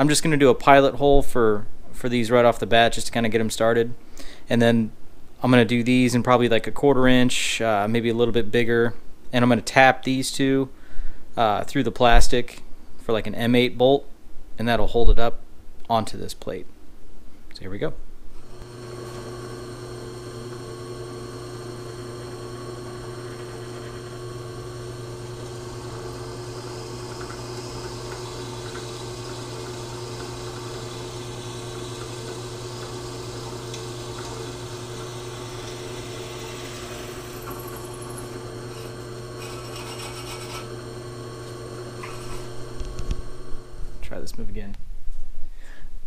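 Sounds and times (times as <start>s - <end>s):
drill press motor hum: 18.3s - 44.2s
high scraping of drill bit: 18.4s - 44.1s.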